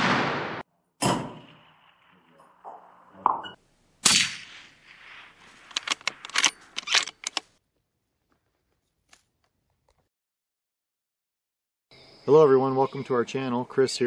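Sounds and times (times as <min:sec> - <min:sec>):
rifle shot with echo: 0:00.0 - 0:03.0, 0:04.0 - 0:05.5.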